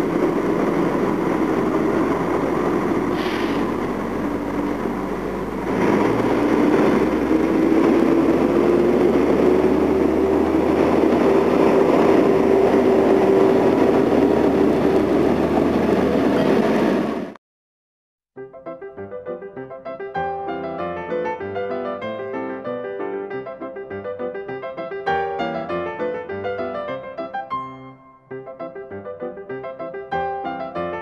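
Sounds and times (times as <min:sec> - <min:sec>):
diesel railcar engine: 0:00.0 - 0:17.4
rising whine: 0:00.0 - 0:17.4.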